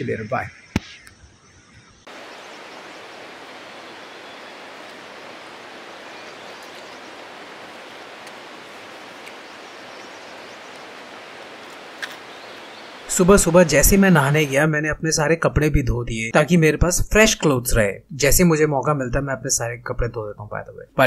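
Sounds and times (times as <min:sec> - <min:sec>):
rushing water: 0:02.1 - 0:14.6.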